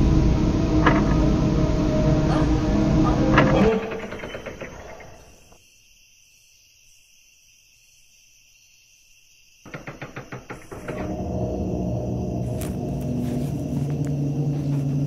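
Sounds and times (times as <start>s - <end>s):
film score: 0.0s - 5.6s, 9.7s - 15.0s.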